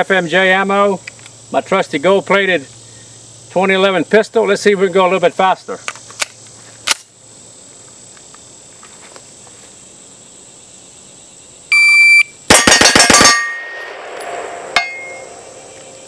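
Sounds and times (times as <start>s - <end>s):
shot timer beep: 11.7s - 12.3s
rapid pistol shots: 12.5s - 13.5s
sharp metallic clink: 12.5s - 15.5s.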